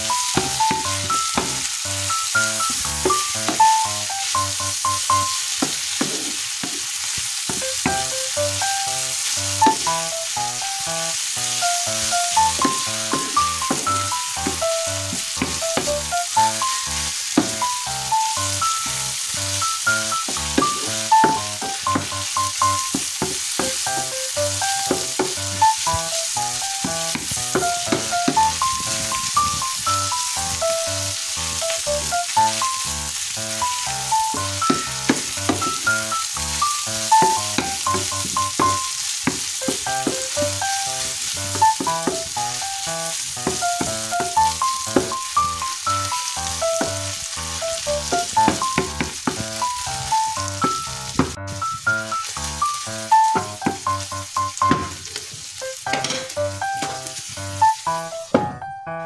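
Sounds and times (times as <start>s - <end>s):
background music: 0.0s - 5.4s, 7.6s - 23.0s, 23.6s - 39.0s, 39.6s - 55.0s, 55.6s - 59.0s
food sizzling in frying pan: 0.0s - 58.4s
wooden spatula stirring: 11.9s - 16.0s, 20.6s - 29.8s, 37.1s - 42.4s.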